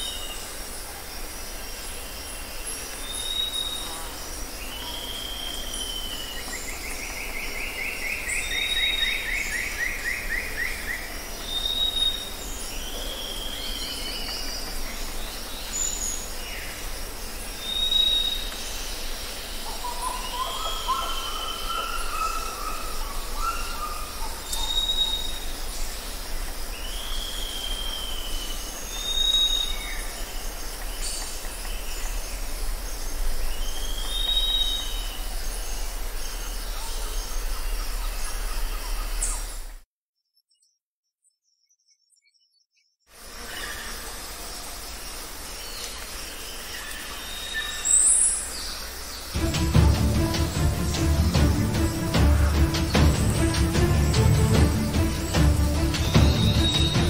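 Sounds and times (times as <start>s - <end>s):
bird whistled calls: 17.6s - 18.6s, 19.7s - 25.4s, 33.6s - 35.2s, 55.4s - 57.0s
low wavering bird call: 49.4s - 57.0s.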